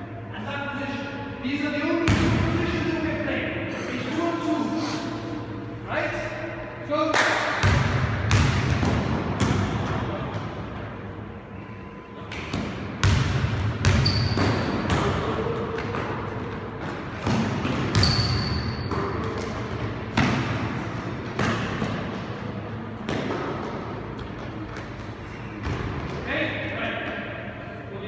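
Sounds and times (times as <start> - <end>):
basketball bouncing on hard floor: 7.6 - 10.0, 12.5 - 15.2, 16.8 - 20.6
sneaker squeaks on floor: 13.8 - 14.9, 17.9 - 19.4.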